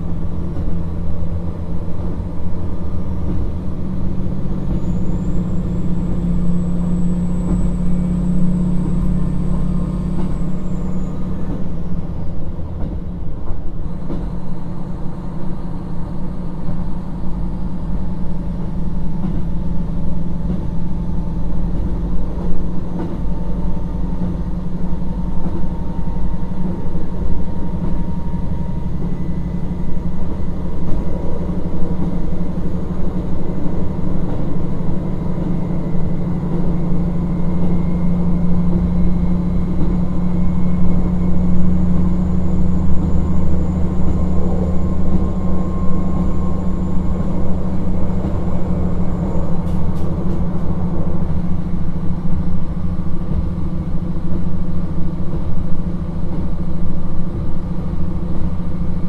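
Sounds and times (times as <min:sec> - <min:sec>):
diesel engine drone: 0:00.0 - 0:59.0
train wheels on rails: 0:00.0 - 0:59.0
high-pitched whine: 0:04.5 - 0:12.5, 0:34.6 - 0:53.9.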